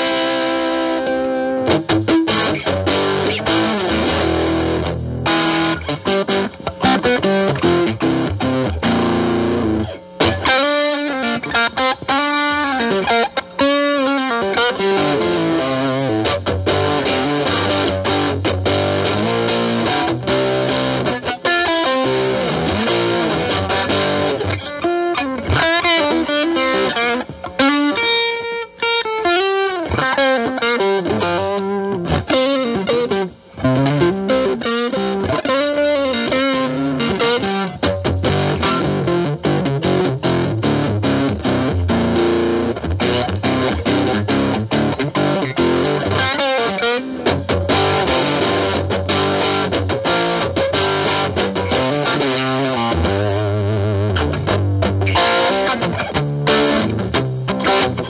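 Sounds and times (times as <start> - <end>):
distorted electric guitar lead: 0.0 - 58.0.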